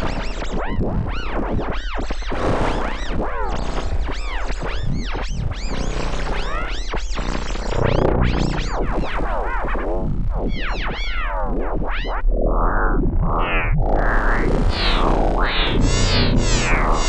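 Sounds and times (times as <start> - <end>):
low synth drone: 2.4 - 9.0, 13.2 - 17.0
swooping synth tones: 2.4 - 9.6, 13.2 - 17.0.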